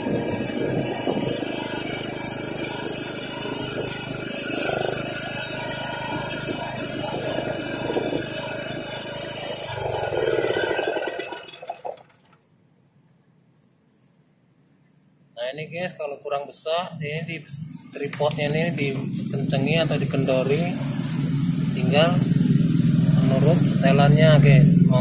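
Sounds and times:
portable generator running: 0:00.0 - 0:12.4, 0:17.6 - 0:25.0.

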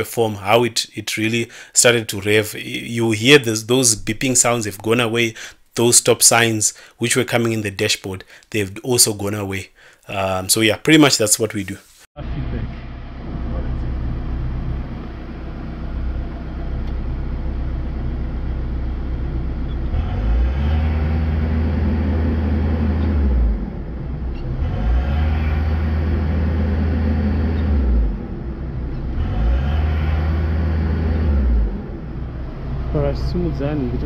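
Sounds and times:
diesel engine idling and revving: 0:12.3 - 0:34.0.

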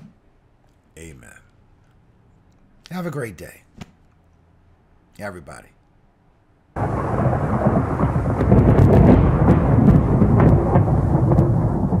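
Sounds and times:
thunder crackles: 0:06.8 - 0:12.0
thunder rumbling: 0:06.8 - 0:12.0.

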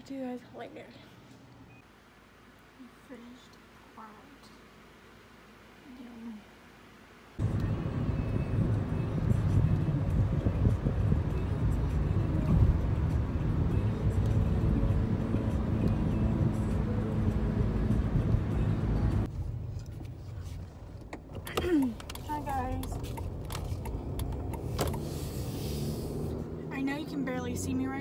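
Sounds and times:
car road and engine rumble: 0:01.7 - 0:28.0.

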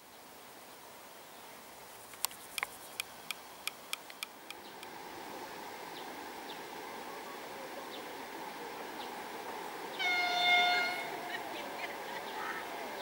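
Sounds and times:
sharp ticks: 0:02.0 - 0:05.0
faint freight train: 0:02.9 - 0:13.0.

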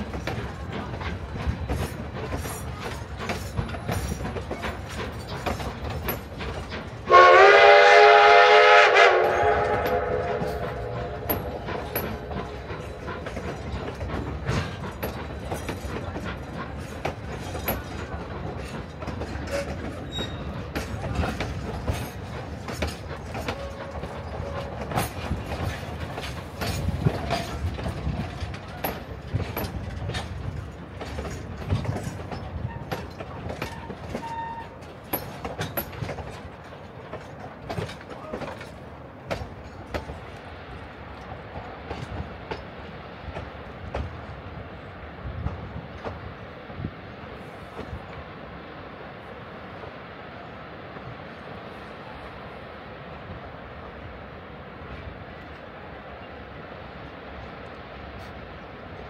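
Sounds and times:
train wheels clattering over rails: 0:00.0 - 0:48.4
wheel flanges squealing: 0:19.5 - 0:20.7.

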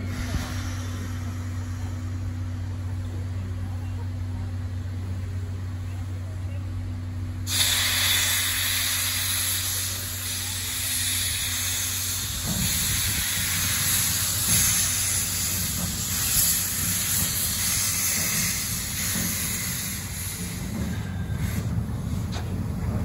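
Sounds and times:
steam hissing: 0:07.5 - 0:22.4.

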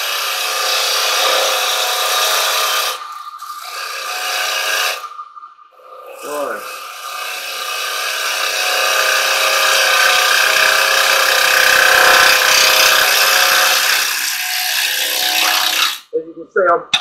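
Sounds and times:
lathe tool cutting wood: 0:00.0 - 0:05.1, 0:05.8 - 0:16.0.

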